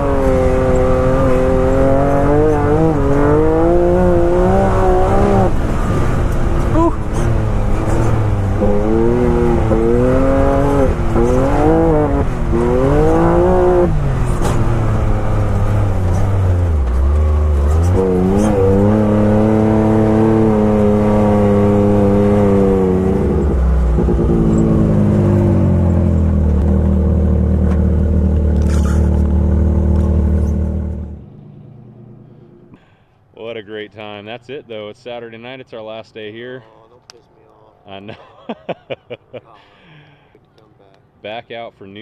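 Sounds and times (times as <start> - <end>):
engine revving: 0.0 - 32.9.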